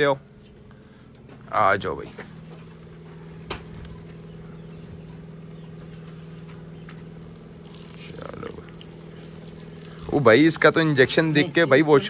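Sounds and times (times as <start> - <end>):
motor humming: 0.0 - 12.0.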